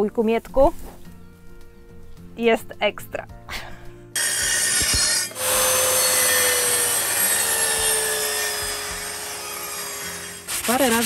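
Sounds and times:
circular saw cutting wood: 4.2 - 11.0.

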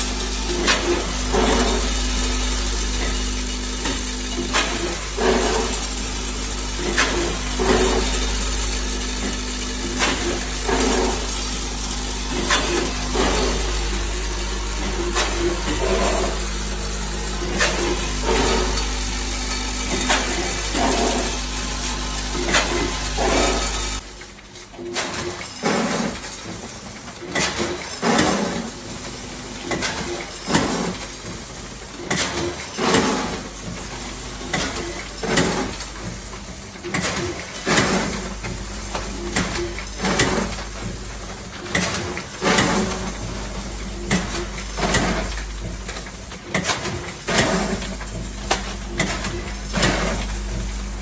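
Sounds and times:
machine humming: 0.0 - 24.4, 37.5 - 51.0
machine clacks: 0.0 - 51.0.

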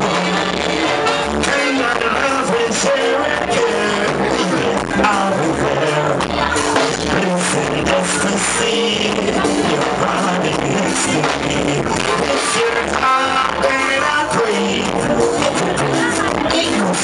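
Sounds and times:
man singing into microphone: 0.0 - 17.0
reggae music over sound system: 0.0 - 17.0.

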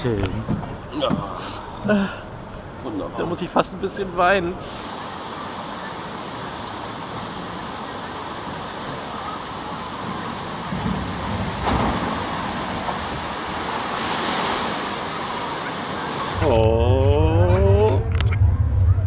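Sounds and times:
boat splashing into water: 4.7 - 16.7.

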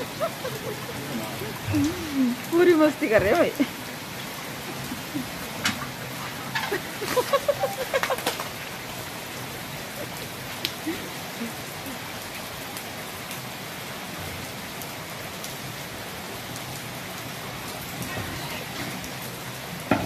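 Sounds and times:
rain on wet paving: 0.0 - 20.0.

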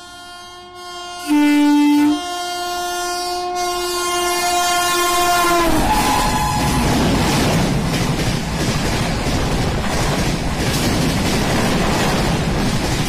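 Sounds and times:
locomotive horn: 0.0 - 7.0
low horn blast: 0.0 - 7.1
train rumbling by: 4.4 - 13.0.

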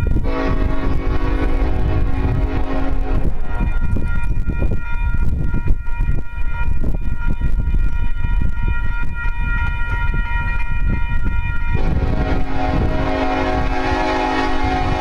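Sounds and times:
crossing warning bell ringing: 0.0 - 15.0.

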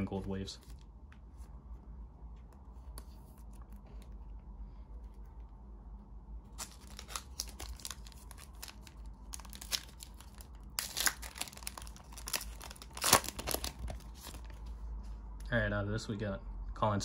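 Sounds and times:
wrapper tearing and crinkling: 6.5 - 14.6.

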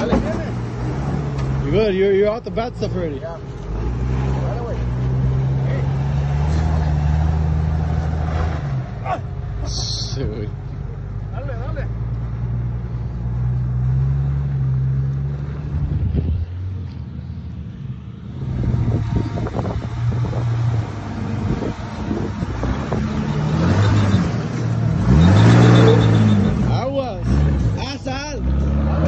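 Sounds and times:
vehicle knocks and rattles: 0.0 - 0.7
vehicle engine at low revs: 0.0 - 29.0.

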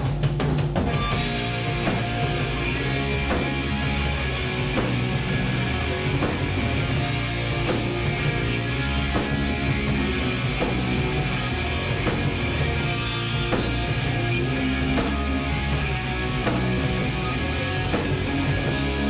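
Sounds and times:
cymbal and drum accents: 0.0 - 19.0
rock band playing: 0.0 - 19.0.

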